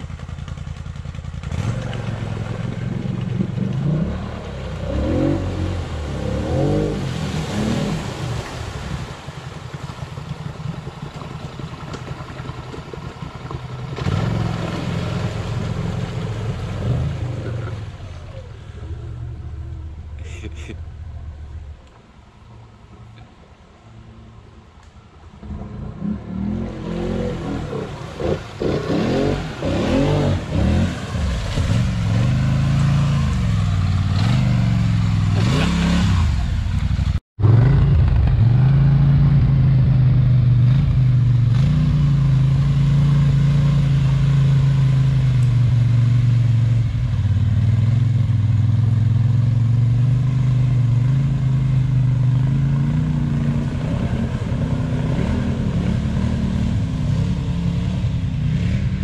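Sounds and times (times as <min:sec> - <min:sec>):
atv engine revving: 0:00.0 - 0:21.8, 0:25.3 - 0:59.0.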